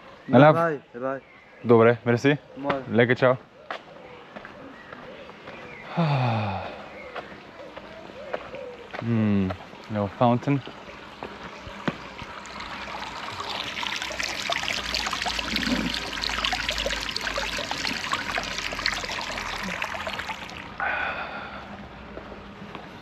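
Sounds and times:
fountain water splashing: 9.6 - 20.8.

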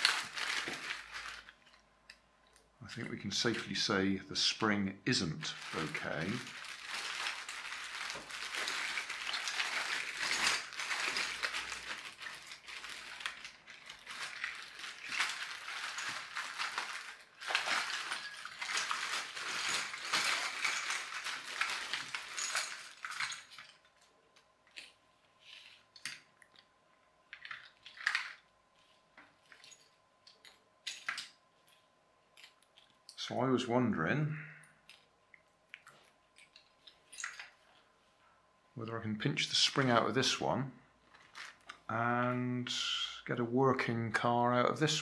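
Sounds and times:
plastic bag crinkling: 0.0 - 1.8, 5.4 - 26.7, 27.3 - 33.3, 41.0 - 41.9
plastic parts rattling in bag: 0.0 - 1.8, 5.4 - 24.1, 27.3 - 31.8, 41.1 - 41.9.

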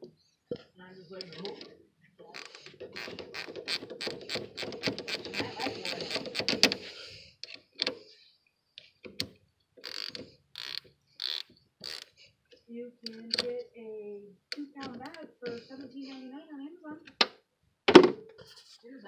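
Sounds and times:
ratchet wrench clicking: 9.8 - 12.2.

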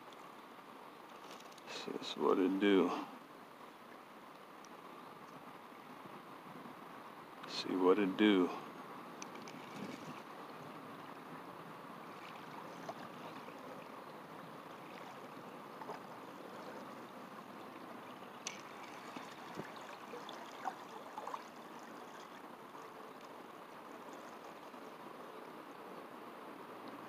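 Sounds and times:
water lapping at a bank: 0.0 - 27.0.

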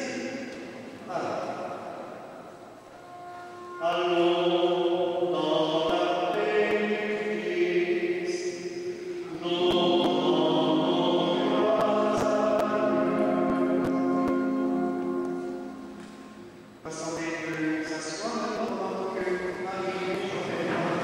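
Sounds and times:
group of voices singing chords: 3.9 - 16.5.

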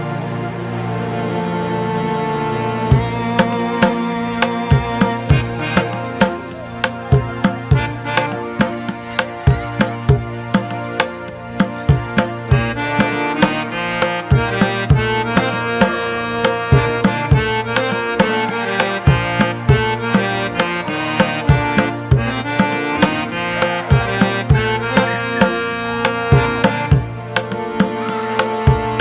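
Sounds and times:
instrumental music with percussion beat: 2.9 - 29.0.

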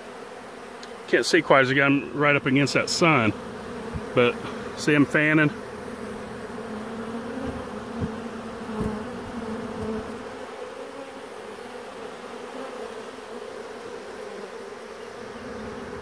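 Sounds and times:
bees buzzing: 0.0 - 16.0
soft bumps: 7.4 - 10.2.

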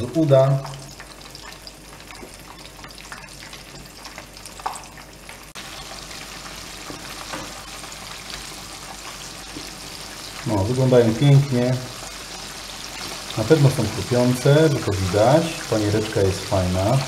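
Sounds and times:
chicken deep-frying in oil: 0.0 - 17.0.

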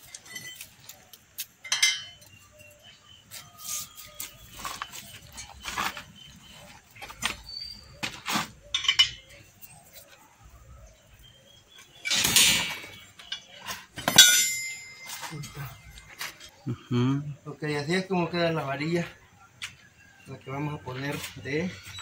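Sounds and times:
rebar bender clinking on metal bar: 1.6 - 2.4, 8.7 - 9.4, 12.0 - 15.6.

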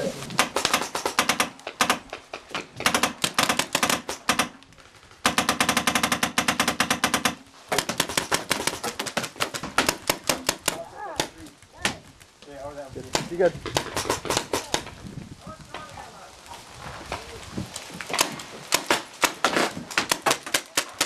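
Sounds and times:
paintball markers firing: 0.4 - 4.6, 5.2 - 12.0, 13.0 - 15.0, 18.1 - 21.0.

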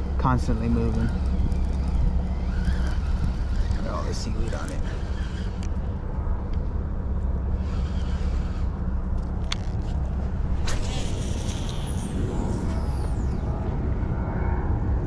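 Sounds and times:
steady low rumble: 0.0 - 15.0
fishing reel clicks: 0.4 - 5.9.

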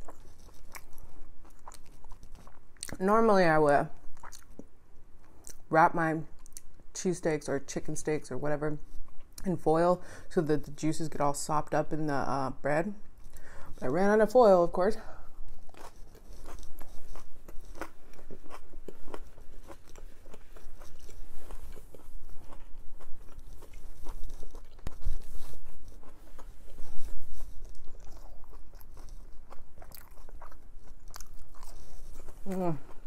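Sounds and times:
person chewing crunchy food: 0.0 - 3.0, 4.0 - 5.7, 15.2 - 33.0.

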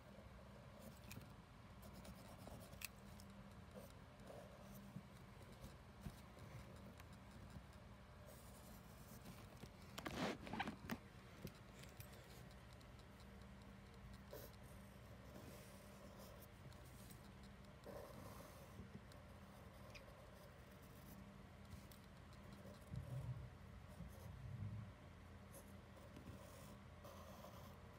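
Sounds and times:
low steady hum: 0.0 - 27.9
pen drawing on paper: 13.8 - 18.8, 26.4 - 27.8.

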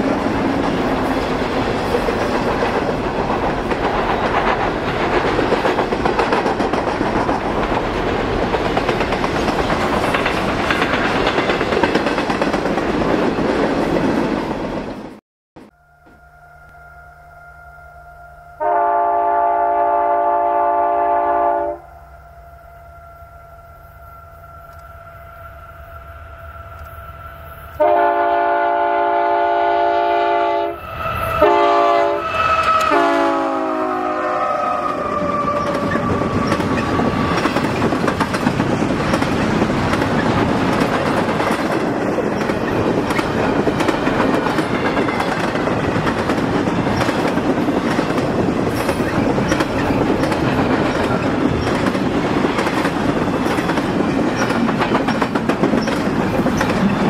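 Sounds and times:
train wheels running on rails: 0.0 - 15.2, 30.7 - 57.0
locomotive air horn blasts: 15.7 - 36.4.

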